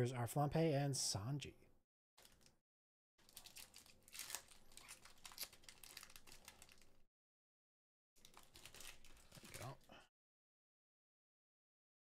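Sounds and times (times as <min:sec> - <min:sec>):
foil wrapper crinkling and tearing: 0:02.2 - 0:02.6, 0:03.2 - 0:07.0, 0:08.2 - 0:09.9.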